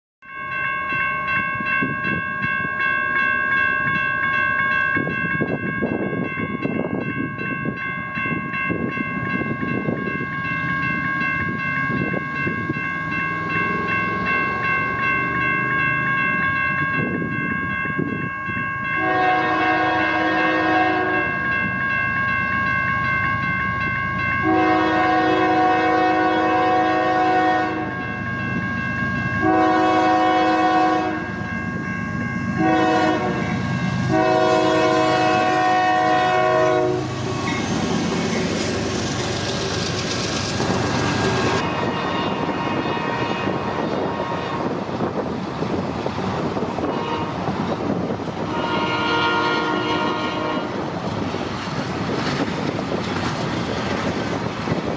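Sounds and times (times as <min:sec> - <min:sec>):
freight train whine and rumble: 0:00.3 - 0:54.9
locomotive horn blasts: 0:19.0 - 0:21.4, 0:24.4 - 0:28.1, 0:29.4 - 0:31.4, 0:32.6 - 0:37.6, 0:41.6 - 0:44.8, 0:46.8 - 0:47.5, 0:48.4 - 0:50.8.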